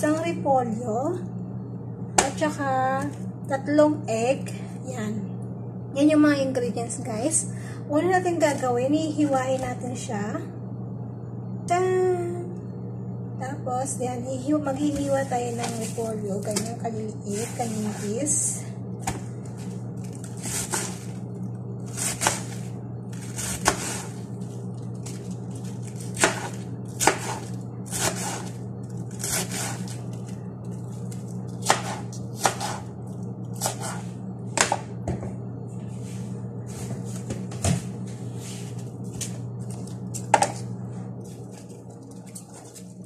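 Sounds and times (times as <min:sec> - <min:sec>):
steady low hum: 0:00.0 - 0:43.0
knife slicing cabbage on board: 0:21.9 - 0:22.5, 0:23.2 - 0:24.1, 0:26.2 - 0:28.5, 0:29.1 - 0:29.9, 0:31.6 - 0:32.8, 0:33.6 - 0:34.0.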